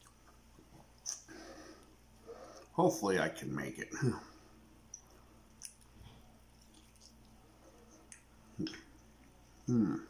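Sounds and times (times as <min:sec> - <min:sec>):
chewing with wet mouth clicks: 0:04.9 - 0:09.4
short throat hums: 0:08.6 - 0:08.9, 0:09.6 - 0:10.0.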